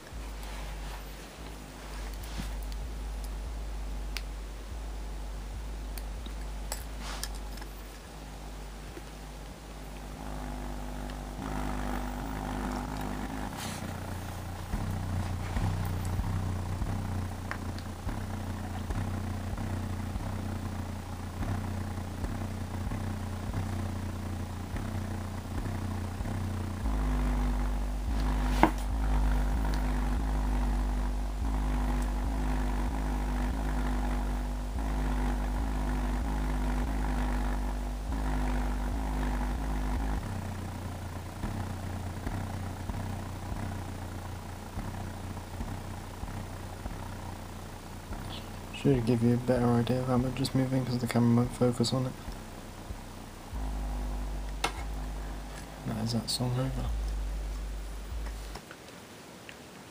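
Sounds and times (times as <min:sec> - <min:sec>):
subwoofer playing deep bass: 0:00.0 - 0:58.6.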